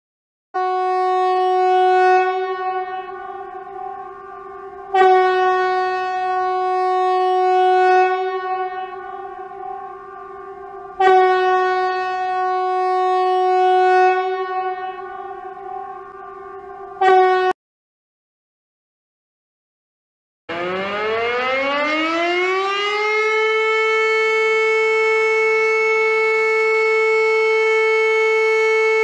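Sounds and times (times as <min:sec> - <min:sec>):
warning siren steady tone: 0:00.6 - 0:17.6, 0:20.5 - 0:29.0.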